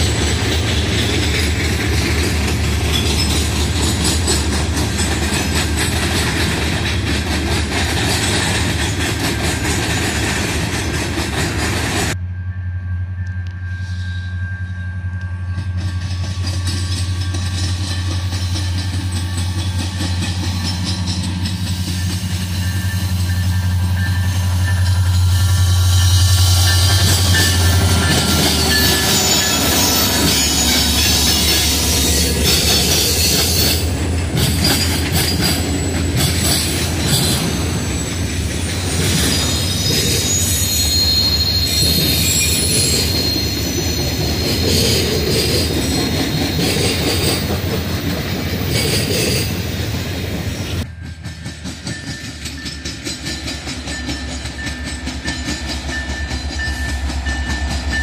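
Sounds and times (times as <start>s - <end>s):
diesel locomotives running: 0.0s - 58.0s
train wheels rumbling on rail: 0.0s - 58.0s
high-pitched wheel squeal: 12.5s - 47.5s.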